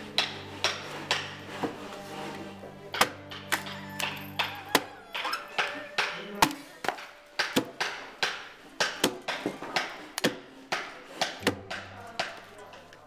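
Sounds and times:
axe chopping into log: 2.9 - 3.7, 6.0 - 12.3.

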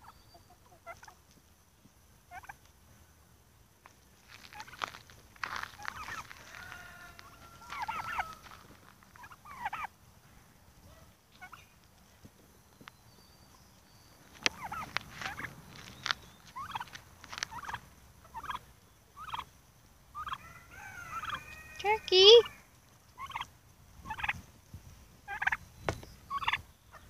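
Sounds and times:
turkeys calling: 0.0 - 1.3, 2.2 - 2.7, 3.8 - 10.0, 11.3 - 12.2, 14.1 - 24.4, 25.2 - 27.0.

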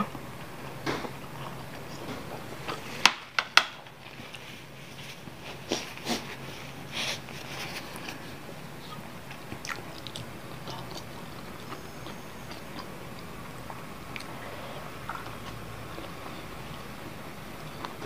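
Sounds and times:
soft chewing: 0.0 - 3.0, 3.9 - 18.0
nose blowing into tissue: 5.6 - 7.3.

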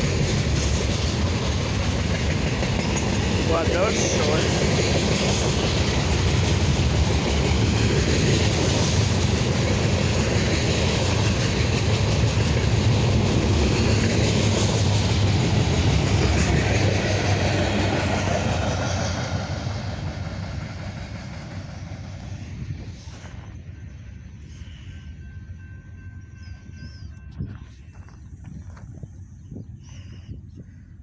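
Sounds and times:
freight train wheels clattering on rails: 0.0 - 23.6.

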